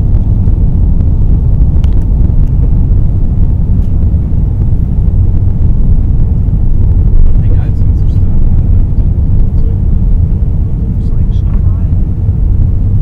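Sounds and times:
jet engines at takeoff thrust: 0.0 - 13.0.

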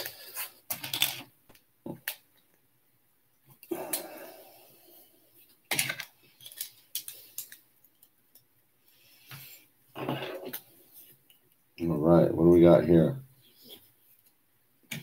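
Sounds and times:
plastic bricks clicking and clattering: 0.7 - 1.3, 5.7 - 7.6.

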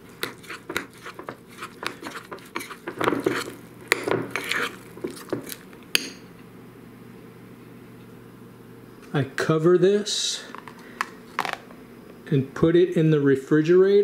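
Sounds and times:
spoon clinking and scraping bowl: 0.1 - 6.2.

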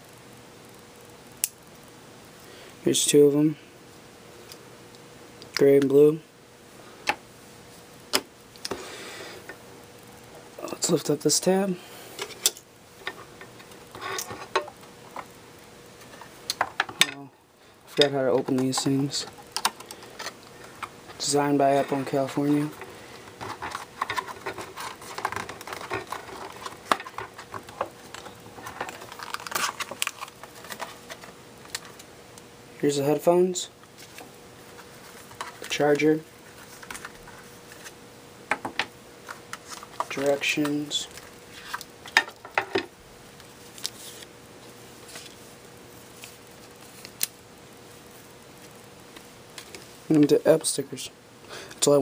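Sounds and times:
faint steady hum: 0.0 - 52.0
plastic packaging crinkling: 22.2 - 32.0.

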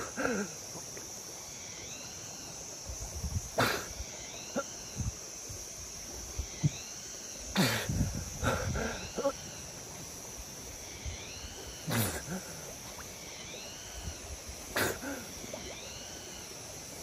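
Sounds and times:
high insect drone: 0.0 - 17.0
man puffing and spluttering: 3.6 - 4.0, 7.5 - 9.4, 11.8 - 12.8, 14.7 - 15.5.

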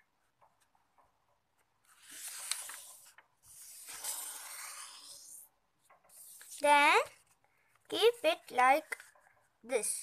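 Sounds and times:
paper rustling as folded: 1.8 - 5.4, 6.0 - 6.8.

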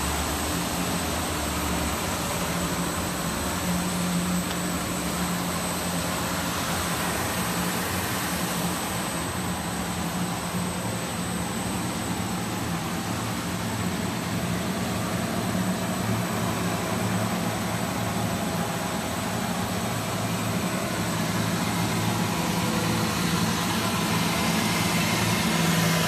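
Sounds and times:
sanding machine humming and hissing: 0.0 - 26.0.

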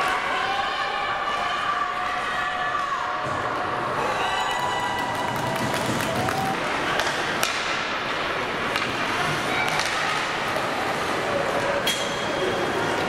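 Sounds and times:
hockey sticks knocking puck on ice: 6.9 - 7.9.

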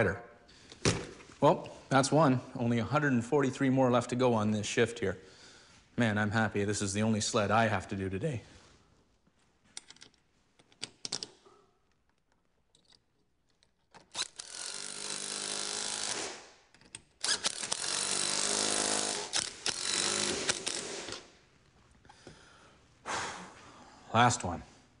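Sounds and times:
power driver spinning nuts: 14.1 - 16.4, 17.2 - 21.2.

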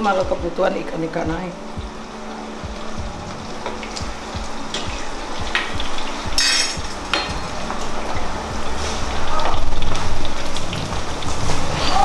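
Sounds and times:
food sizzling in a wok: 0.0 - 12.0
metal spatula clinking and scraping: 6.4 - 7.3.

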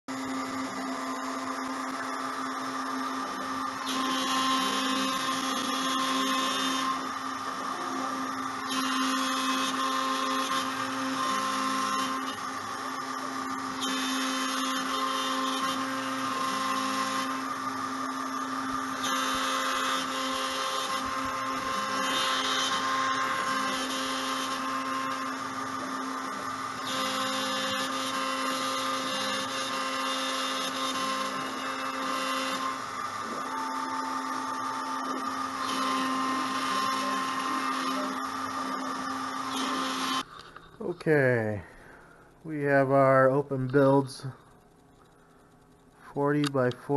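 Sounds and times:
router motor whining: 0.1 - 40.5.

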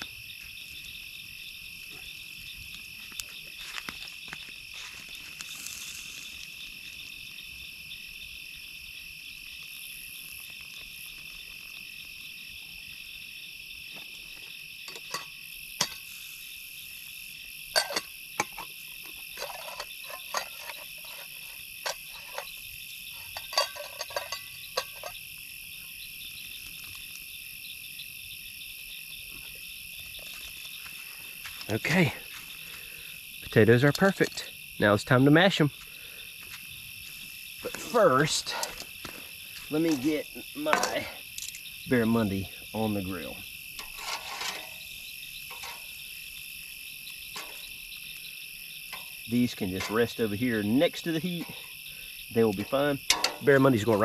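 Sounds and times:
night insects chirring: 0.0 - 54.0
cooking pot clinking: 14.9 - 16.0, 17.8 - 18.6, 19.4 - 22.5, 23.3 - 25.2, 45.5 - 46.0, 47.3 - 47.7, 52.6 - 54.0.

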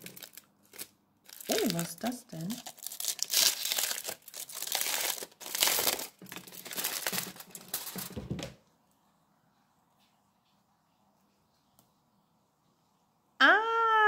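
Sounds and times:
aluminium foil crinkling: 0.0 - 8.3.

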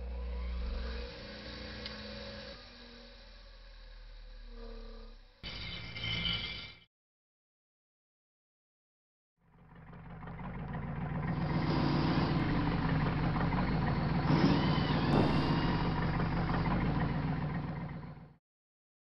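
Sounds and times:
short rising whine: 0.0 - 6.8, 11.3 - 18.2
forklift engine running: 9.5 - 18.4
knock: 15.1 - 15.6.

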